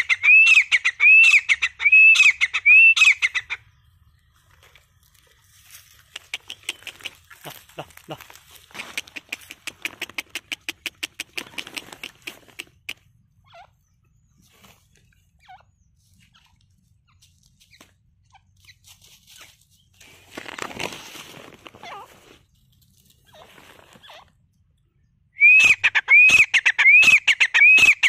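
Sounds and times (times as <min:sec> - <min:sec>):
bird rustling in dry grass: 0:04.3 - 0:10.2, 0:18.6 - 0:24.1.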